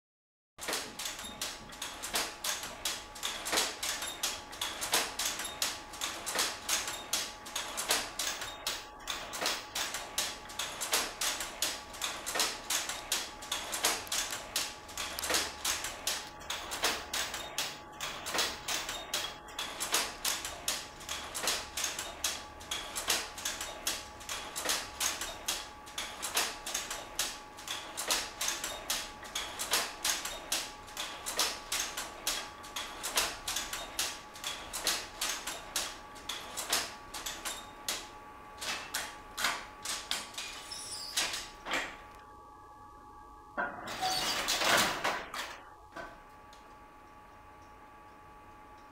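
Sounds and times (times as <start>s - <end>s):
power loom clacking: 0.6s - 37.7s, 43.8s - 45.6s
faint machine hum: 0.6s - 48.9s.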